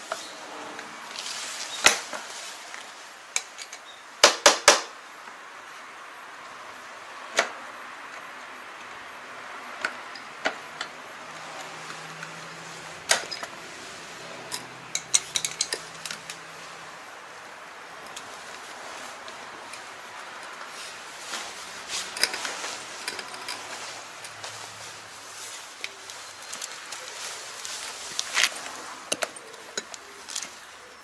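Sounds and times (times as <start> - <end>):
metal clinks and knocks: 14.5 - 16.4.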